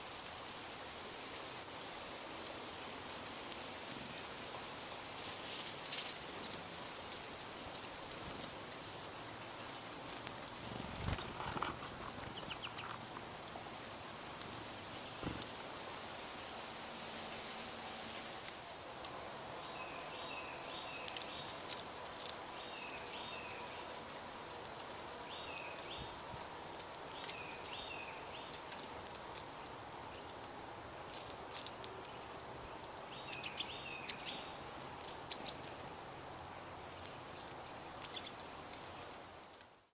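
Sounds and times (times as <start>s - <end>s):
steady hiss: 0.0s - 39.9s
small songbirds calling: 1.2s - 2.0s, 5.9s - 6.8s, 9.2s - 13.4s, 19.5s - 24.2s, 24.8s - 30.5s, 31.1s - 37.2s, 38.0s - 39.2s.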